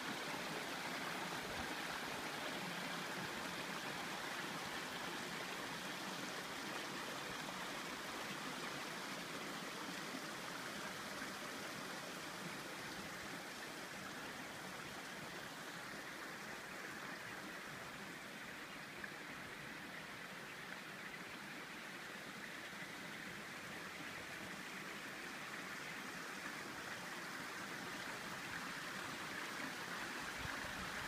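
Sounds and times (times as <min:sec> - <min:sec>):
river flowing over boulders: 0:00.0 - 0:31.0.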